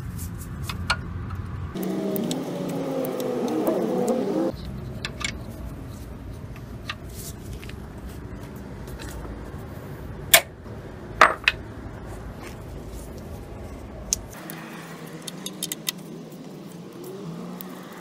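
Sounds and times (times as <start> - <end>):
allen key metal clicks: 14.1 - 16.1.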